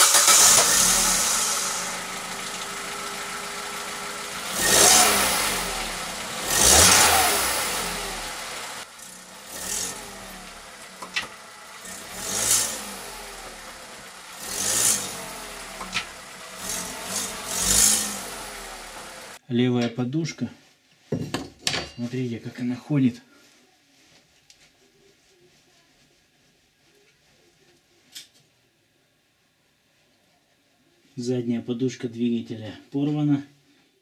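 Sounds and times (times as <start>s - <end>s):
car engine revving: 0.0s - 19.4s.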